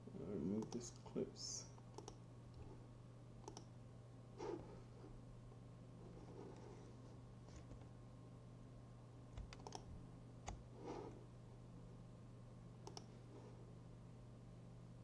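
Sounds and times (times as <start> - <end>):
steady low hum: 0.0 - 15.0
mouse and keyboard clicks: 1.8 - 2.2, 3.4 - 3.7, 9.4 - 9.9, 12.8 - 13.1.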